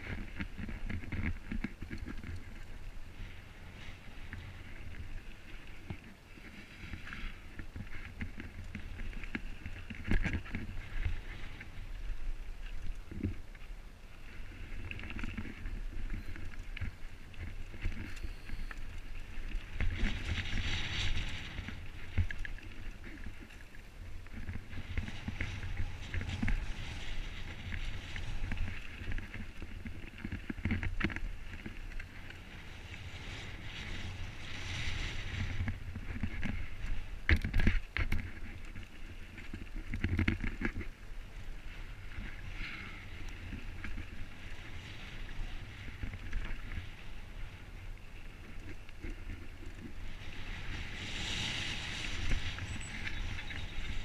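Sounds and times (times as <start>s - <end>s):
bike tyres crunching over gravel: 0.0s - 54.0s
wind rumbling on microphone: 0.0s - 54.0s
bike knocking and rattling: 14.8s - 54.0s.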